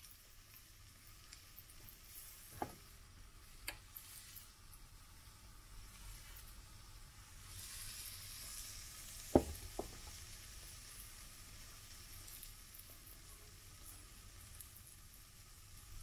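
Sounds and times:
batter sizzling in a frying pan: 0.0s - 16.0s
sharp knocks: 9.4s - 10.0s.

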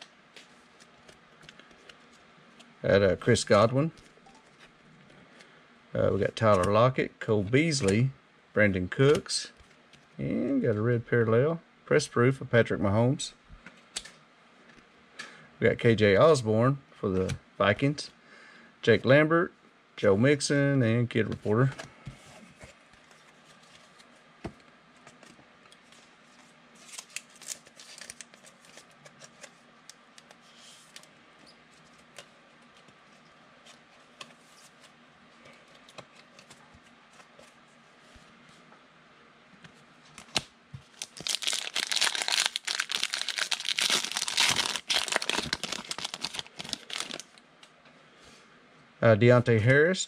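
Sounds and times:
card wrapper tearing: 26.8s - 28.9s, 40.2s - 47.4s
trading cards rustling: 40.2s - 47.4s.

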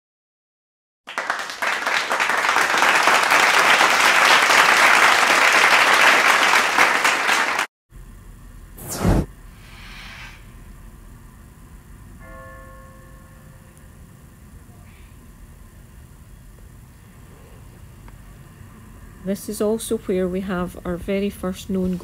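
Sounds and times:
crowd applause: 1.1s - 7.7s
short whoosh: 8.8s - 10.7s.

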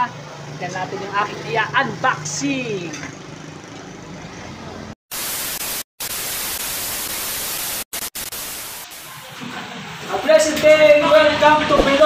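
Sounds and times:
television static hiss: 5.1s - 10.8s.

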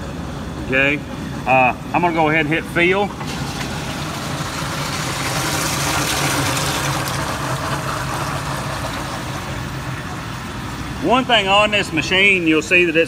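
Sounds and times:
low machine hum: 0.0s - 13.0s
water rushing into tank: 3.1s - 11.0s.

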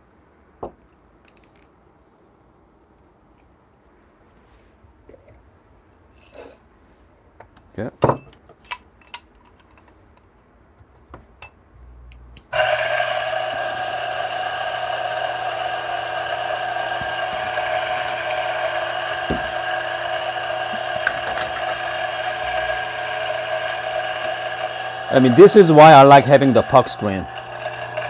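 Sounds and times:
espresso pump buzzing: 12.5s - 28.0s.

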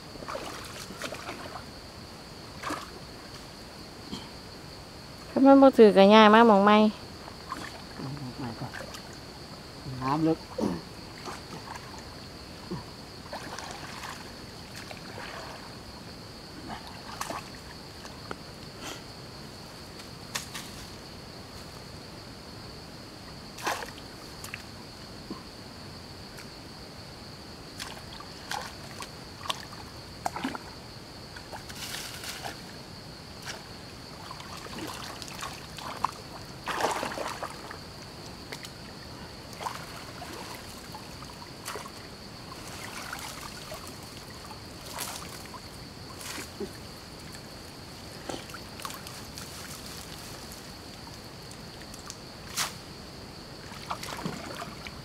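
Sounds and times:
water splashing: 0.2s - 1.7s, 7.4s - 8.0s, 13.2s - 15.7s, 34.2s - 37.8s, 38.5s - 47.4s, 53.6s - 55.0s.

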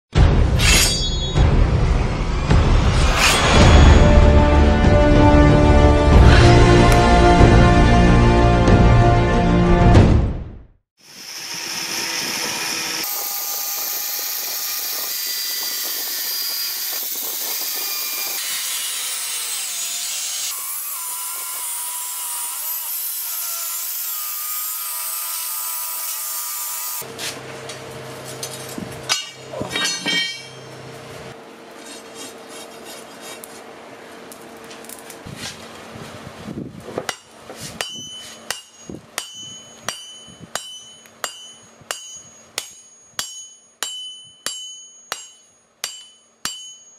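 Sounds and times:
hammer striking steel on anvil: 0.2s - 1.7s, 28.4s - 30.8s, 37.1s - 46.9s
angle grinder cutting steel: 11.0s - 27.1s.

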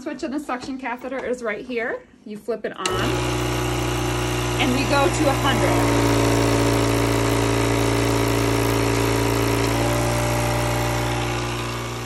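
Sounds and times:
suction pump humming: 2.8s - 12.0s.

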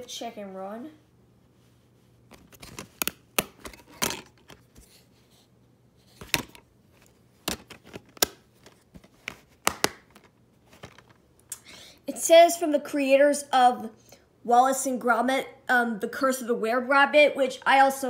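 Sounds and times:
plastic case clicks and snaps: 2.5s - 4.6s, 7.4s - 11.1s.

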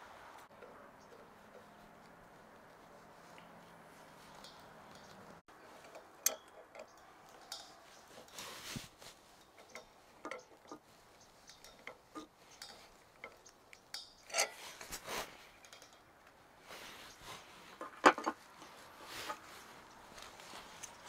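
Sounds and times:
wrench scraping metal pipe: 5.6s - 16.0s, 16.9s - 19.7s
pipe wrench clicking on metal pipe: 5.8s - 7.7s.

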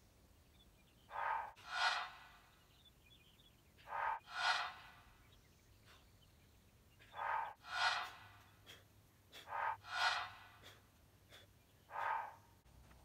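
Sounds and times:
man breathing hard: 7.0s - 12.4s.

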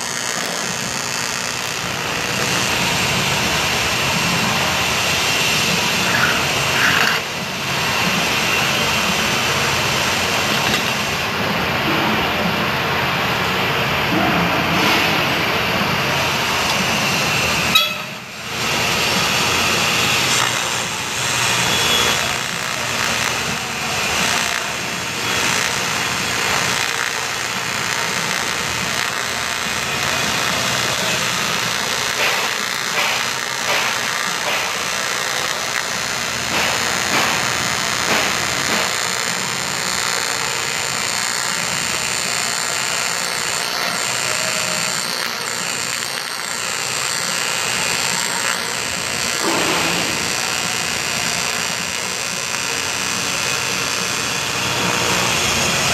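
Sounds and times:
welding arc buzzing hiss: 0.0s - 55.9s.

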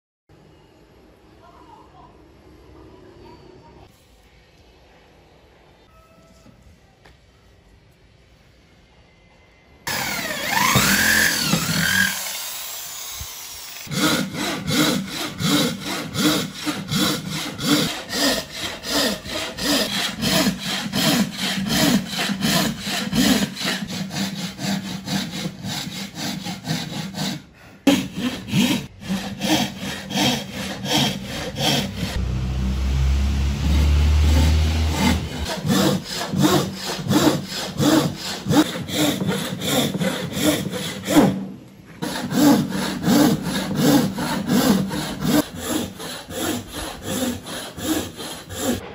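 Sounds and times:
frame saw rasping through wood: 9.9s - 41.4s, 42.0s - 48.9s.

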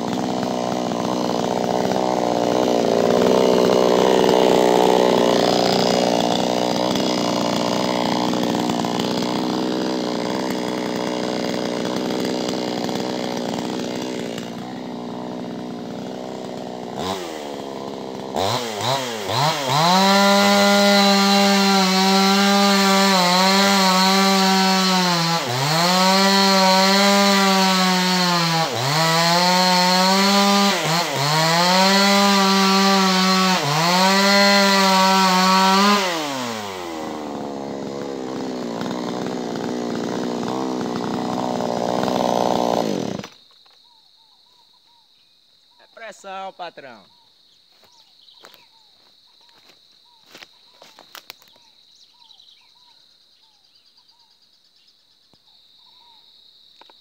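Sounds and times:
chainsaw engine revving: 0.0s - 43.5s.

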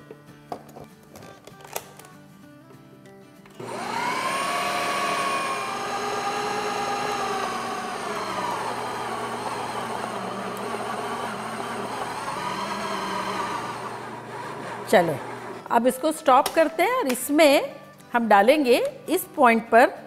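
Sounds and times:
food processor motor whining: 3.6s - 15.7s.

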